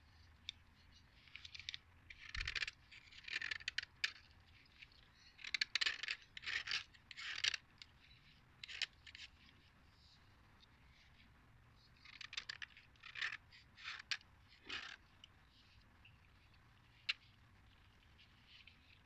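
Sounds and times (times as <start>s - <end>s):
knife blade scraping chalk: 12.0s - 15.0s.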